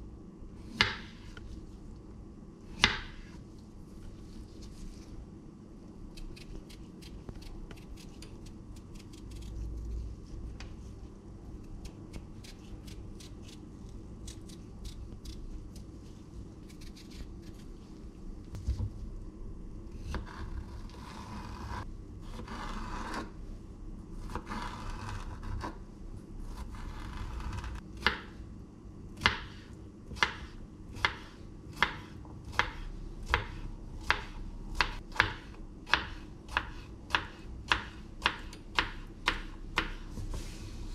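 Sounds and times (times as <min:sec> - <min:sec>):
knife scraping vegetable skin: 0:06.2 - 0:10.0, 0:16.7 - 0:17.6
knife chopping on wooden board: 0:29.2 - 0:40.0.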